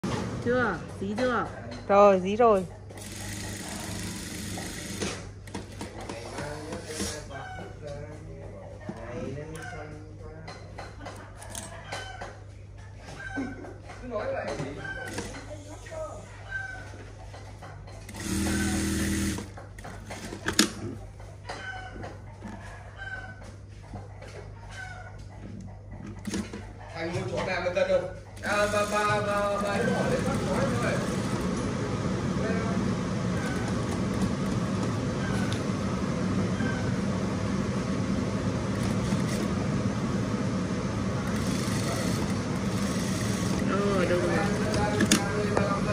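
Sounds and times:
sewing machine running: 0:03.0 - 0:05.2, 0:18.1 - 0:19.5, 0:28.4 - 0:31.7, 0:38.6 - 0:39.6, 0:41.2 - 0:45.4.

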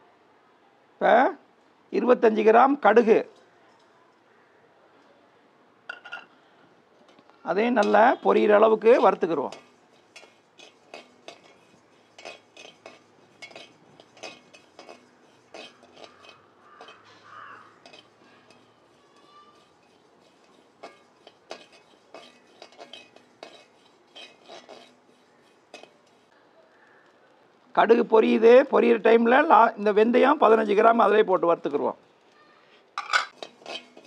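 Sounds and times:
metal spatula scraping seeds in pan: 0:07.1 - 0:26.4, 0:33.0 - 0:34.0.

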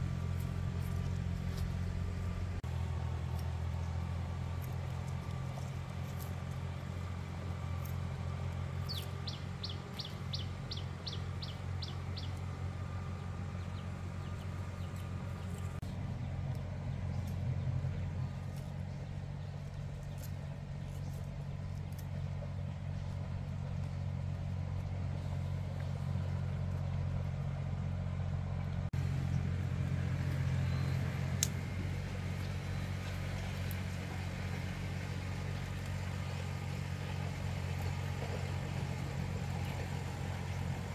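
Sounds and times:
motor humming: 0:00.0 - 0:40.9
bird chirping: 0:08.8 - 0:12.4.

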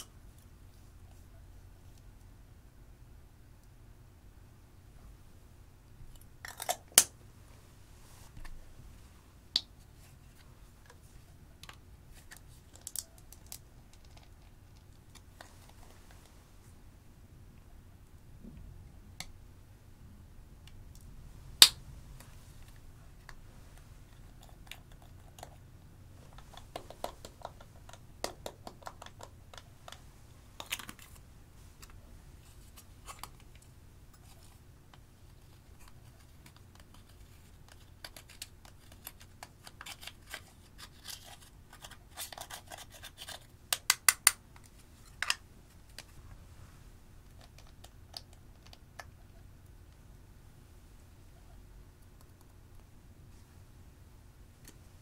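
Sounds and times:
plastic compacts clicking: 0:26.4 - 0:30.0.

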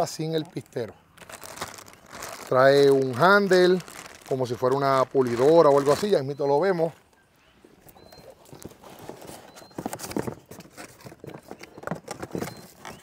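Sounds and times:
packaging rustling: 0:01.2 - 0:06.2
plastic parts knocking and clicking: 0:09.6 - 0:13.0.

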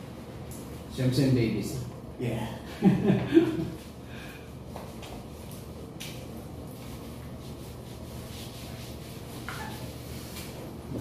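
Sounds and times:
hands rubbing soapy skin: 0:04.7 - 0:10.6.

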